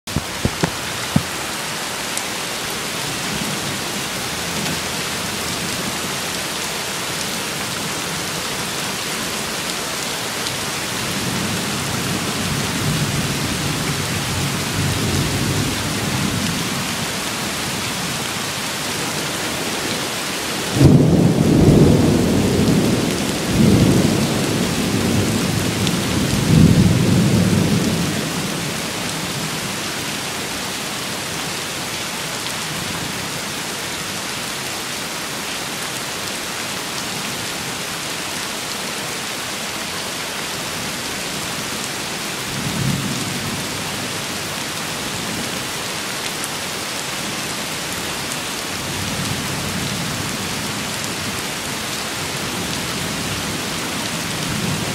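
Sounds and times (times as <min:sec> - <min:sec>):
steady rain hiss: 0:00.1 - 0:54.9
thunder rumbling: 0:20.6 - 0:29.2.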